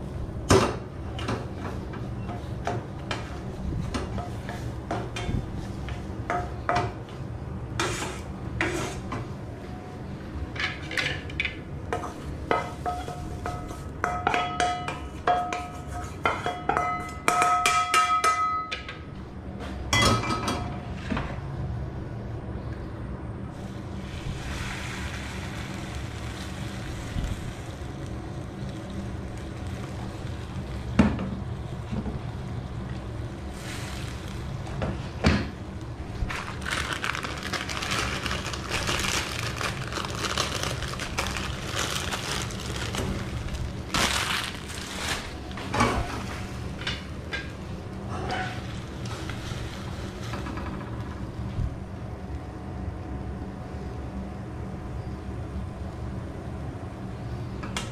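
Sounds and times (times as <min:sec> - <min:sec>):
spatula scraping wok: 0:07.8 - 0:09.1, 0:48.1 - 0:49.9.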